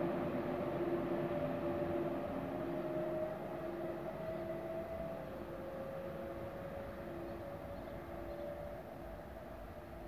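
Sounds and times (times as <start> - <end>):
train rumble: 0.0 - 10.0.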